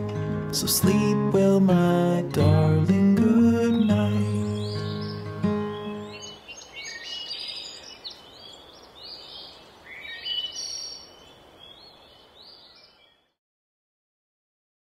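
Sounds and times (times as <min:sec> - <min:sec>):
faint outdoor hiss: 0:00.0 - 0:13.4
birds chirping and twittering: 0:03.2 - 0:13.4.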